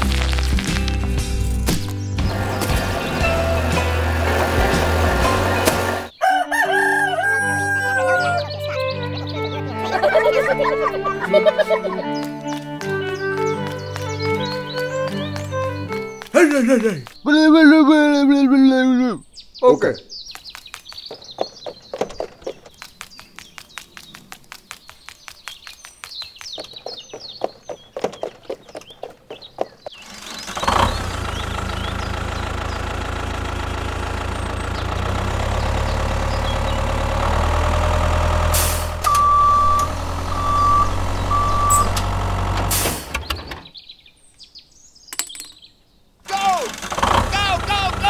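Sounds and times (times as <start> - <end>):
tractor diesel engine running: 0.0 - 6.2, 30.0 - 43.7, 46.3 - 48.0
faint rapid clicking and chirping: 20.2 - 32.8
reversing alarm beeps: 39.0 - 42.0.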